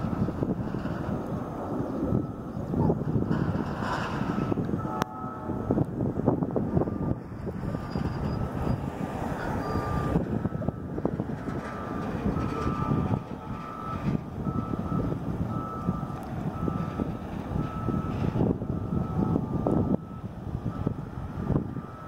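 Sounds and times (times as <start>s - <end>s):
wind buffeting microphone: 0.0s - 22.0s
high electronic beeps: 6.8s - 10.8s.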